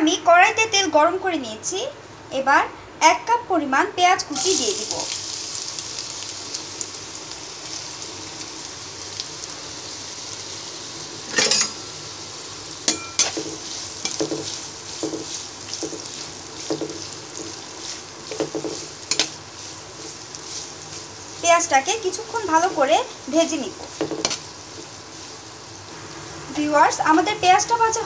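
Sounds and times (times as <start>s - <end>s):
onions sizzling in hot oil: 4.2s - 28.0s
spatula knocking against pan: 12.9s - 17.1s, 18.3s - 19.3s, 23.9s - 24.4s
spatula scraping onions: 12.9s - 26.0s.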